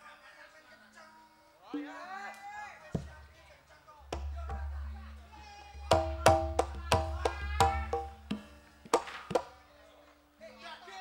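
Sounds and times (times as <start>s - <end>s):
drum and struck metal strokes: 1.8s - 2.2s, 4.0s - 9.5s.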